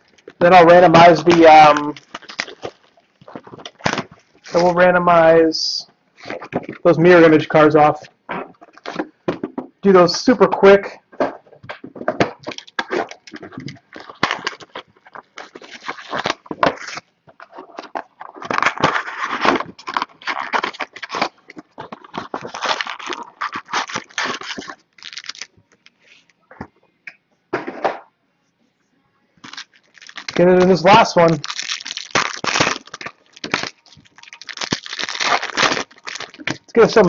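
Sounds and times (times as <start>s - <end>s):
cardboard box tearing and crackling: 0.9s - 4.7s, 12.2s - 25.5s, 29.4s - 37.0s.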